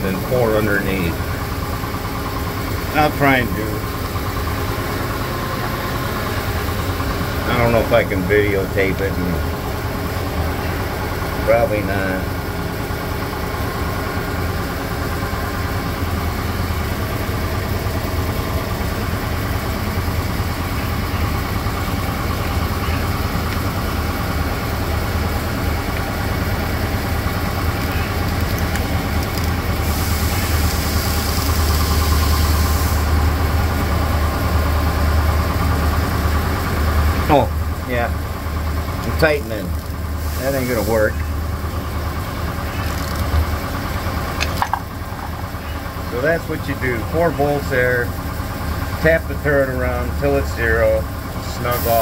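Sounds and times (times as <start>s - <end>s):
shop machinery humming: 0.0s - 52.0s
hiss: 29.8s - 33.3s, 40.2s - 41.3s, 51.5s - 52.0s.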